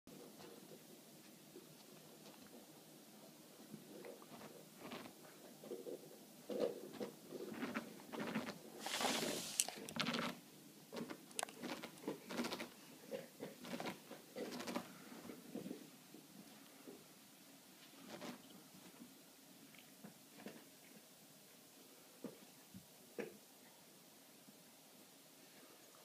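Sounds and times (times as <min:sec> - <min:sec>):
rustling against dog fur: 0:08.3 - 0:09.8.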